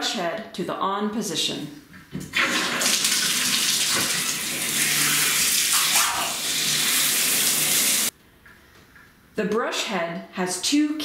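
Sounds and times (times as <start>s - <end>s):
shower water running into tub: 2.3s - 8.1s.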